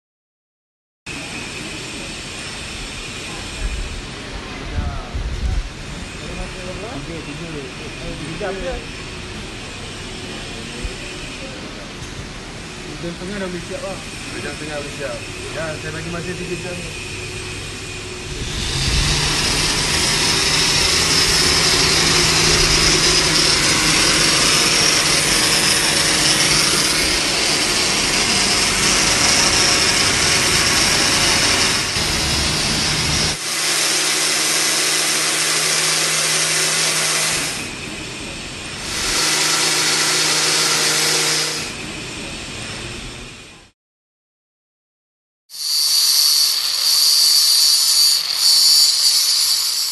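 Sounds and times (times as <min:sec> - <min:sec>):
angle grinder grinding metal: 0:13.3 - 0:37.8, 0:38.8 - 0:41.8, 0:45.5 - 0:49.9.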